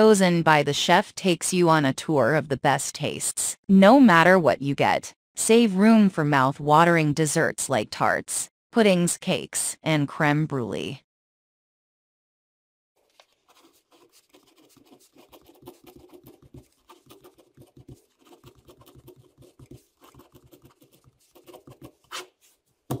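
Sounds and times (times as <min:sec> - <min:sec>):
pen scratching on paper: 0:13.3 - 0:22.6.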